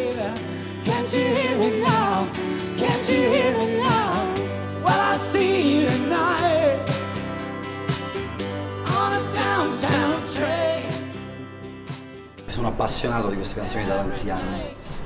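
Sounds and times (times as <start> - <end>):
woman singing with vibrato: 0.0 - 6.8
acoustic guitar: 0.0 - 15.0
keyboard: 0.0 - 15.0.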